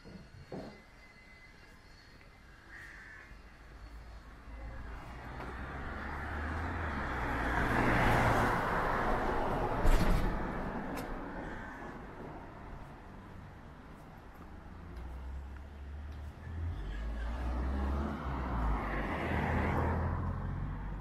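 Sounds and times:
vehicle passing by: 0:04.5 - 0:13.6, 0:14.7 - 0:21.0.

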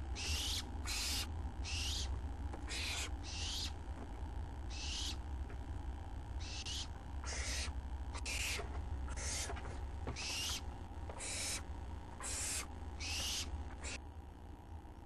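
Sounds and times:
owl nestlings hissing: 0:00.0 - 0:03.8, 0:04.7 - 0:05.2, 0:06.4 - 0:14.0
low steady hum: 0:00.0 - 0:15.0.

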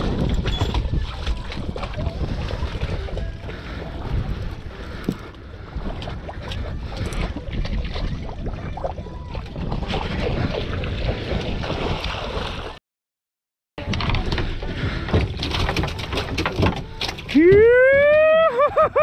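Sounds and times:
wind buffeting microphone: 0:00.0 - 0:12.0
water splashing and thrashing: 0:00.0 - 0:12.8, 0:13.8 - 0:19.0.

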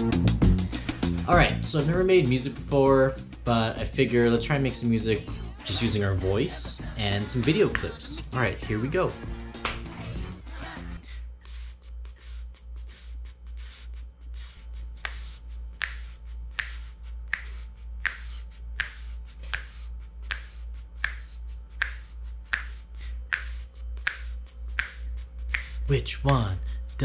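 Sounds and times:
low pulsing vocal bass: 0:00.0 - 0:11.1
hissing beatbox beats: 0:00.0 - 0:27.0
finger snaps: 0:09.6 - 0:10.0, 0:13.7 - 0:26.5.

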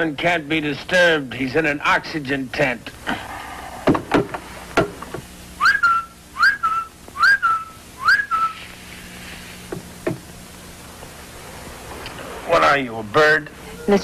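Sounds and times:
person whistling bird-like calls: 0:05.6 - 0:08.7.

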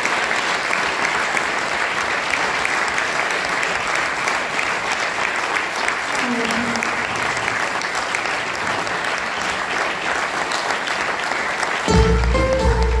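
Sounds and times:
audience applauding: 0:00.0 - 0:13.0
band playing with heavy bass: 0:11.9 - 0:13.0.

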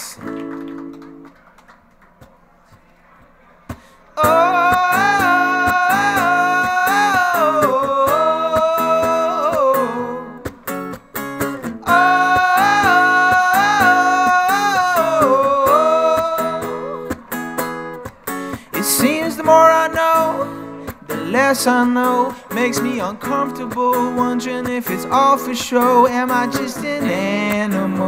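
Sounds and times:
acoustic guitar strumming: 0:03.7 - 0:28.0
man singing: 0:04.2 - 0:10.5, 0:11.8 - 0:17.2, 0:18.7 - 0:28.0.

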